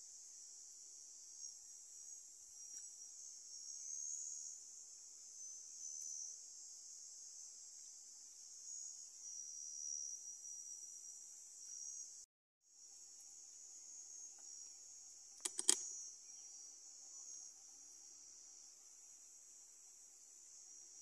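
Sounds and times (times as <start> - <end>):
insects chirping: 0.1 - 12.2, 12.9 - 21.0
sharp clicks: 15.4 - 15.8.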